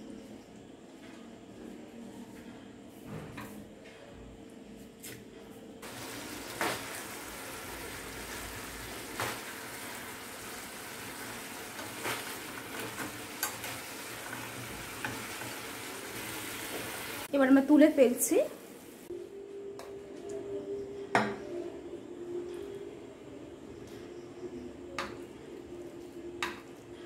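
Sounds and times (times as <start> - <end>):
chicken sizzling in sauce: 5.8 - 19.1.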